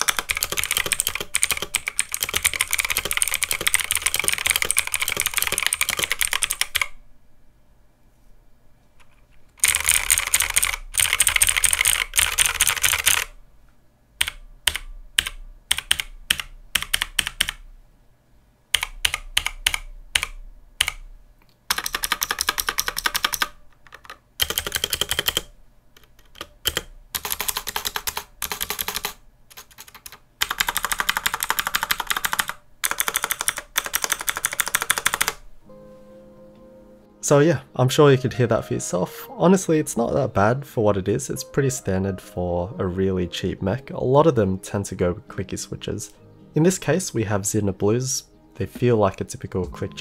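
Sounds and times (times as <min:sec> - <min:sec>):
mechanical keyboard clicking: 0:00.0 - 0:06.9, 0:09.6 - 0:13.3, 0:14.2 - 0:17.6, 0:18.7 - 0:21.0, 0:21.7 - 0:35.4.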